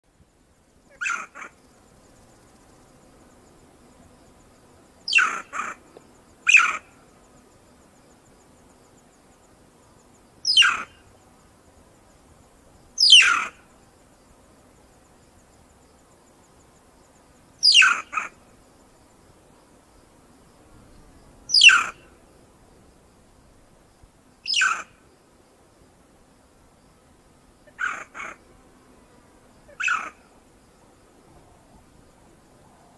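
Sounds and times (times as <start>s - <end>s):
mongoose squealing calls: 1.0s - 1.5s, 5.1s - 5.8s, 6.5s - 6.8s, 10.5s - 10.9s, 13.0s - 13.6s, 17.6s - 18.3s, 21.5s - 22.0s, 24.5s - 24.9s, 27.7s - 28.4s, 29.7s - 30.2s.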